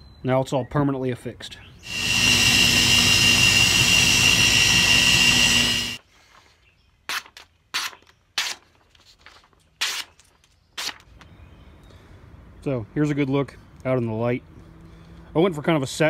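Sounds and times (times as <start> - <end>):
belt grinder whining: 1.9 - 6.0
knife slicing paper: 10.8 - 11.1.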